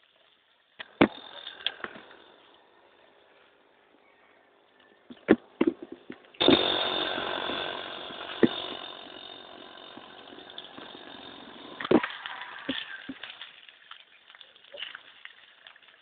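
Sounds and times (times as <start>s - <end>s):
small engine buzzing: 0.8s - 3.6s, 6.3s - 13.6s.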